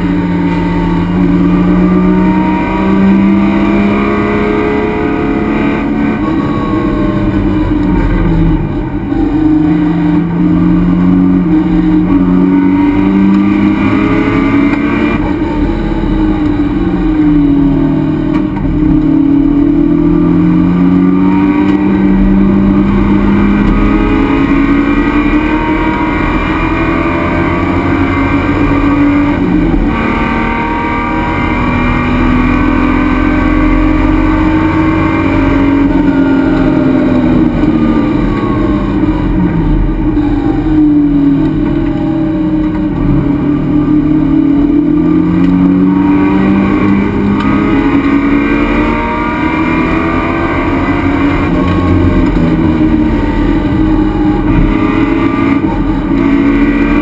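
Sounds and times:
race car engine running hard: 0.0s - 57.0s.

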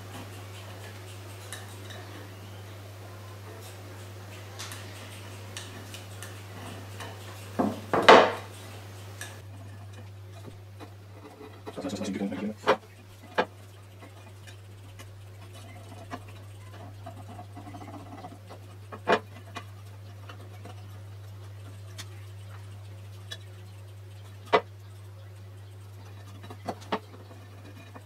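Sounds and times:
steady low hum: 0.0s - 28.0s
sharp knocks: 7.6s - 8.5s.

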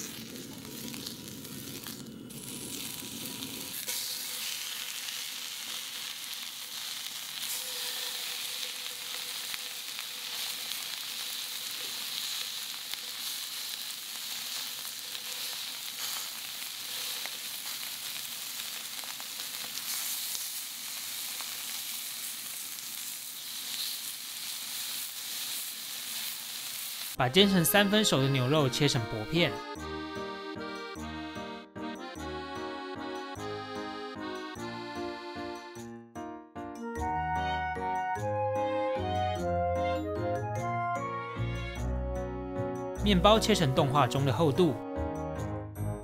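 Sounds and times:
steak sizzling in a skillet: 0.0s - 27.2s.

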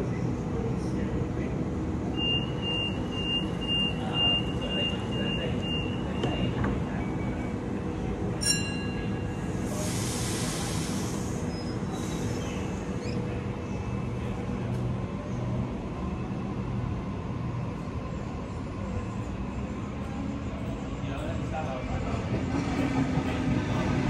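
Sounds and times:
air hissing release: 9.6s - 12.5s.

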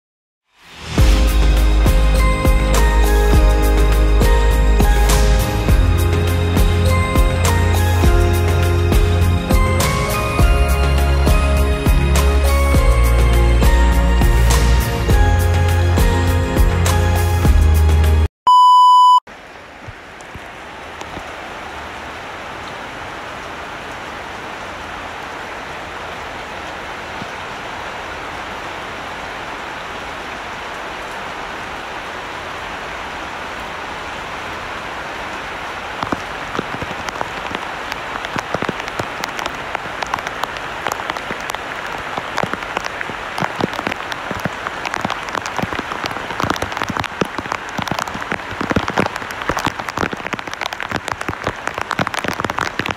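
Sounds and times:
heavy rain through trees: 0.5s - 18.3s, 19.3s - 52.9s
loud electronic beep: 18.5s - 19.2s.

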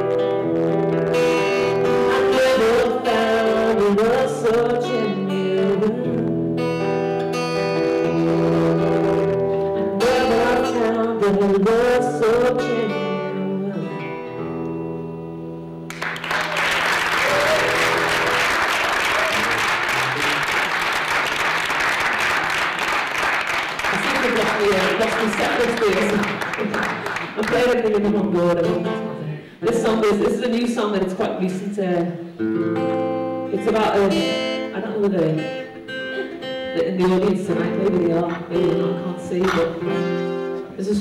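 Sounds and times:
acoustic guitar: 0.0s - 41.0s
woman singing: 2.1s - 6.3s, 9.8s - 14.3s, 24.0s - 32.1s, 33.5s - 35.7s, 36.7s - 40.1s, 40.7s - 41.0s
audience applauding: 15.9s - 27.8s.

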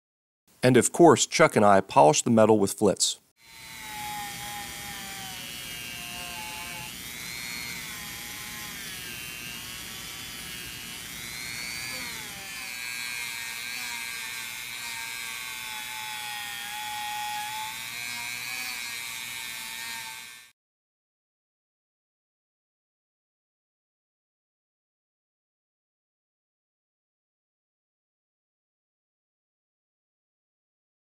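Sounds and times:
rotary tool polishing metal whine: 3.4s - 20.5s.

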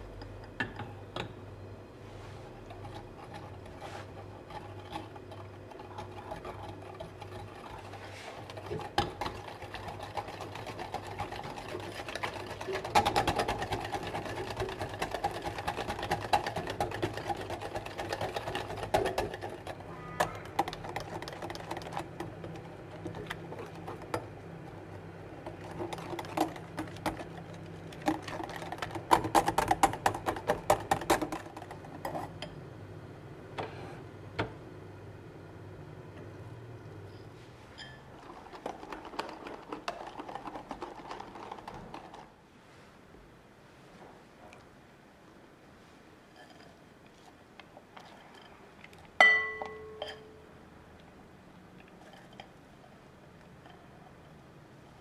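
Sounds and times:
low steady hum: 0.0s - 55.0s
whisk rattling in glass bowl: 2.7s - 24.4s, 25.4s - 32.3s, 37.8s - 42.3s.

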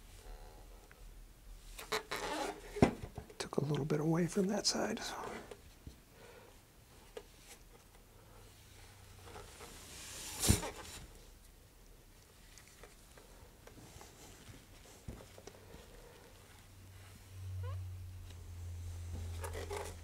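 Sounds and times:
soft handling rustles: 6.9s - 17.3s.

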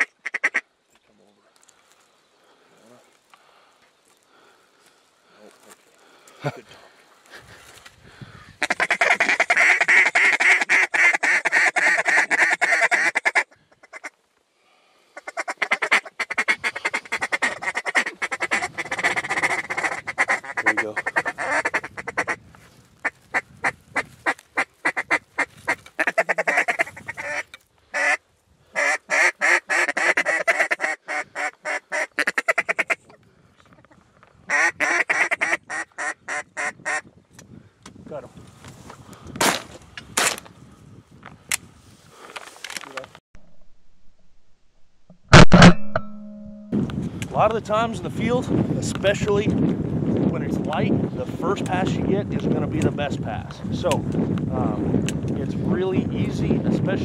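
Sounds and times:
duck call fast quacks: 0.0s - 0.6s, 8.6s - 14.1s, 15.2s - 22.4s, 23.3s - 28.2s, 28.8s - 33.2s, 34.5s - 37.0s.

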